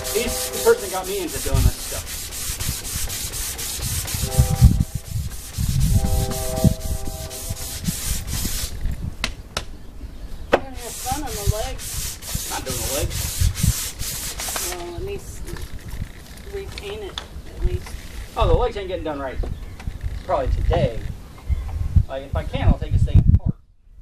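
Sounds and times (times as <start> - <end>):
hand sanding wood: 0.0 - 8.8, 10.7 - 15.0.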